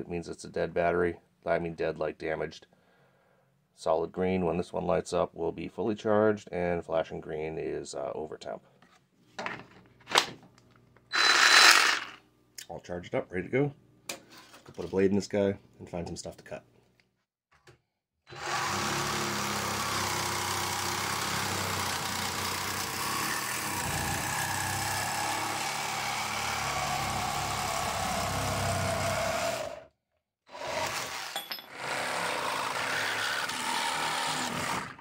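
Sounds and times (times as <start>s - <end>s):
reciprocating saw cutting metal pipe: 11.1s - 12.2s, 18.3s - 29.8s
reciprocating saw cutting wood: 11.1s - 12.2s, 18.3s - 29.9s, 30.5s - 35.0s.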